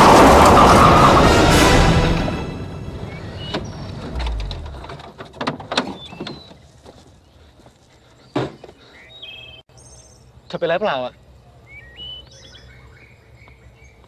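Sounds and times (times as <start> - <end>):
small birds chirping: 3.0 - 4.2, 5.8 - 14.0.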